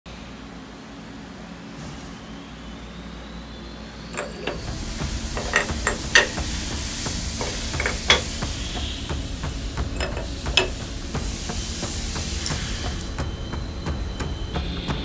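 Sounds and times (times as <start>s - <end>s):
metal clicks and knocks: 4.2s - 8.5s, 9.9s - 11.0s
steady hiss: 4.2s - 15.0s.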